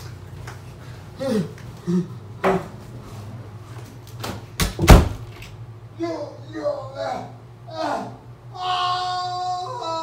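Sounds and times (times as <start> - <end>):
man grunting: 1.2 - 2.2, 6.0 - 10.0
door slamming shut: 4.3 - 5.2.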